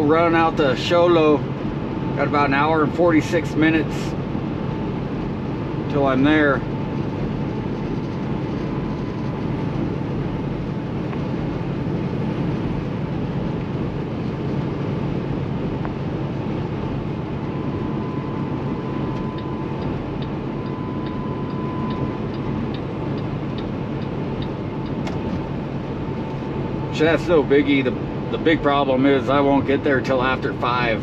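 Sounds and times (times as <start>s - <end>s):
truck diesel engine drone: 0.0s - 31.0s
faint regular ticking: 19.2s - 25.0s.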